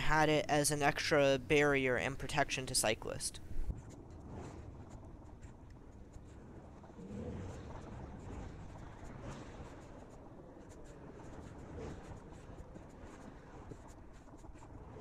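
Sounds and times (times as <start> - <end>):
bicycle tyres rolling on pavement: 3.6 - 15.0.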